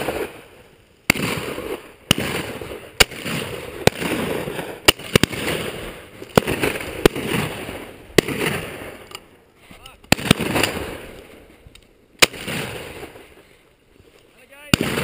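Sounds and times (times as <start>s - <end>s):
shotgun shots with echo: 1.1s - 9.0s, 10.1s - 11.1s, 12.2s - 13.2s, 14.7s - 15.0s.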